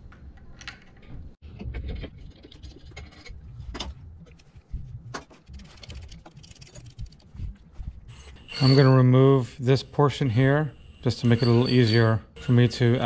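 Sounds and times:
low handling rumble: 1.2 - 9.0.

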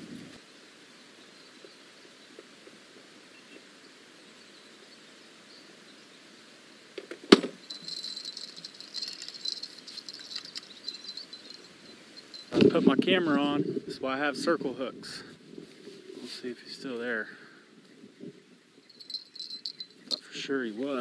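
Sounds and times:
light rustling and ticking: 7.6 - 13.0, 18.8 - 21.0.

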